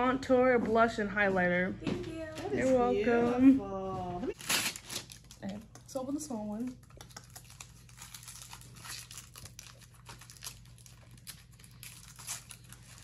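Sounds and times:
wrapping paper crinkling and tearing: 4.3 - 13.0.

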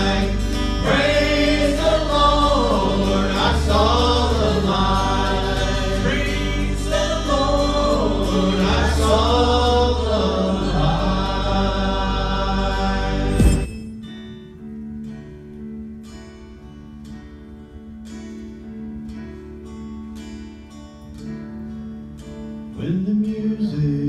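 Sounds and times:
gospel vocal group singing: 0.0 - 13.7.

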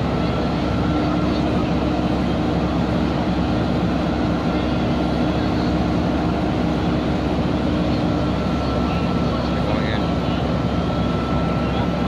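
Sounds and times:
diesel engines droning: 0.0 - 12.0.

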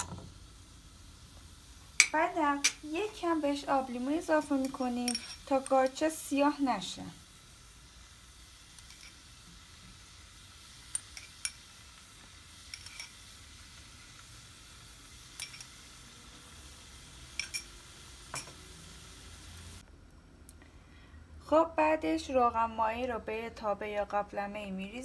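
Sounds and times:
mushrooms sizzling in a pot: 0.0 - 19.8
utensil clinking against pot: 4.6 - 5.8, 15.4 - 15.7, 17.4 - 17.7.

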